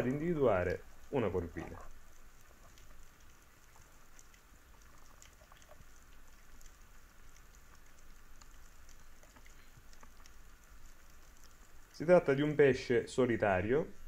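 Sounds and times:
small clicks and crackles: 0:00.0 - 0:12.6
soft underwater hiss: 0:00.0 - 0:14.0.

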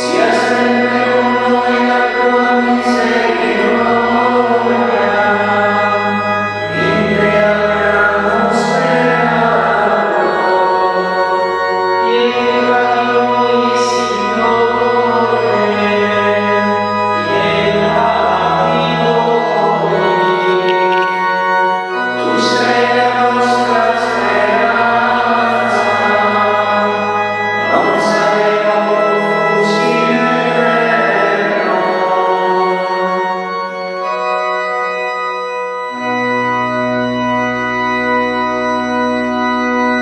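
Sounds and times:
church organ chords: 0:00.0 - 0:40.0
singing: 0:22.1 - 0:33.2.

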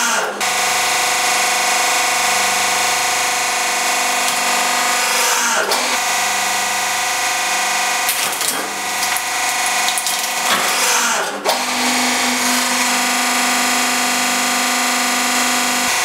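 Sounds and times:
hydraulic press running: 0:00.0 - 0:16.0
cup crackling and cracking: 0:08.1 - 0:10.8.

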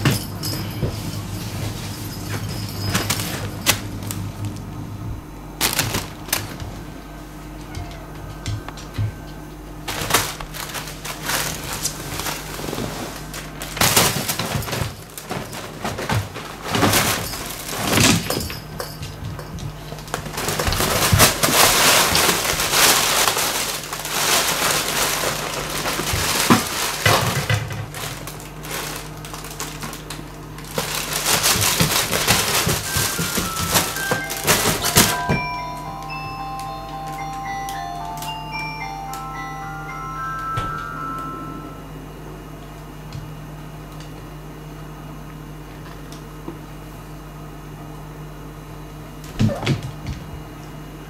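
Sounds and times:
cat rustling crinkly fabric: 0:01.0 - 0:04.4, 0:05.6 - 0:06.8, 0:09.8 - 0:18.3, 0:19.8 - 0:37.3.

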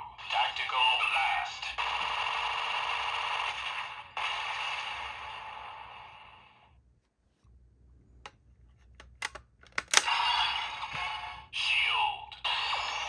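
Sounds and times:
sharp plastic clicks: 0:08.2 - 0:10.1
toy blaster electronic sound effect: 0:09.9 - 0:11.5, 0:12.4 - 0:13.0.

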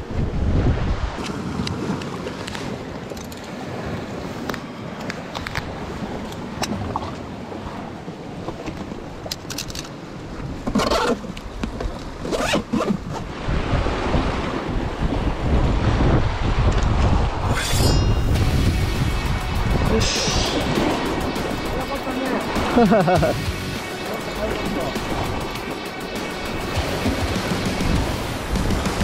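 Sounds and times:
wind gusting on microphone: 0:00.0 - 0:09.3, 0:11.5 - 0:29.0
sea surf: 0:00.0 - 0:29.0.

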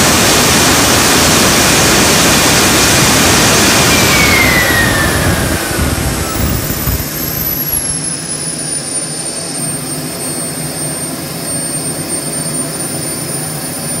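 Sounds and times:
jet turbine whine: 0:00.0 - 0:14.0.

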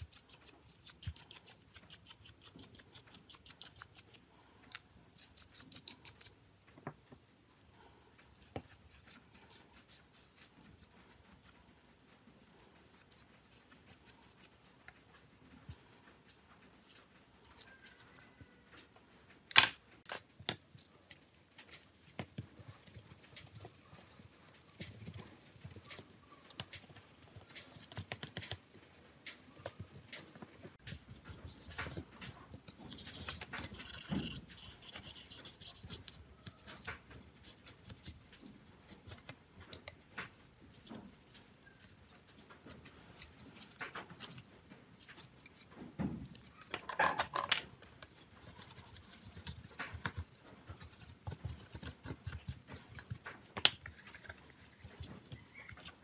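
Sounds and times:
plastic parts clicking and tapping: 0:42.4 - 0:48.2.

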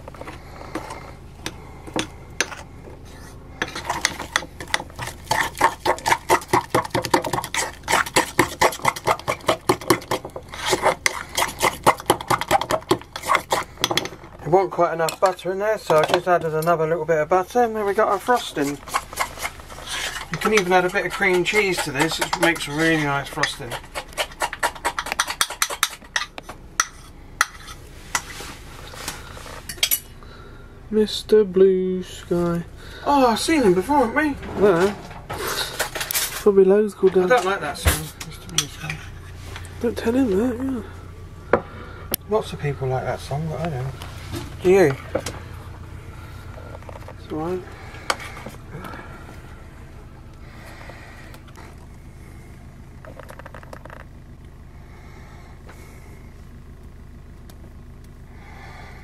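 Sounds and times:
spoon scraping bowl: 0:02.4 - 0:14.1, 0:17.9 - 0:30.0
fork beating in ceramic bowl: 0:03.8 - 0:14.0.

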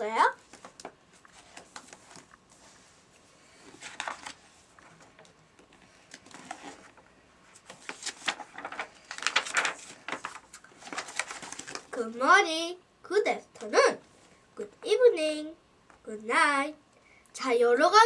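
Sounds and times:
paper pages rustling: 0:00.4 - 0:12.0.

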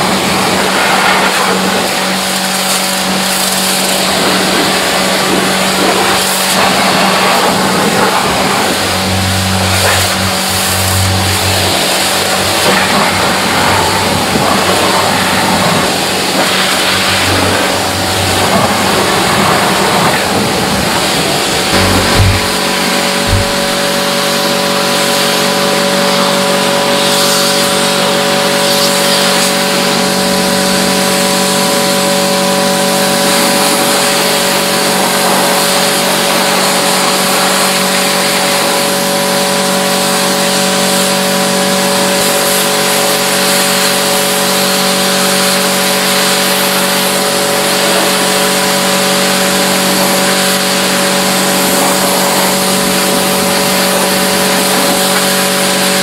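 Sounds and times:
loud hiss: 0:00.1 - 0:25.5
machine motor humming: 0:01.6 - 0:26.6.

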